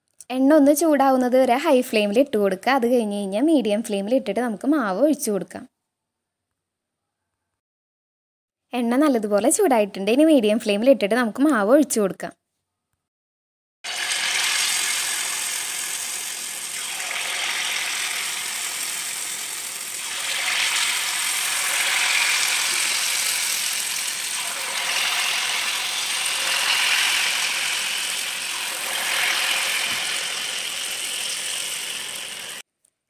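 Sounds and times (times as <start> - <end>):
batter sizzling in hot oil: 13.9 - 32.6.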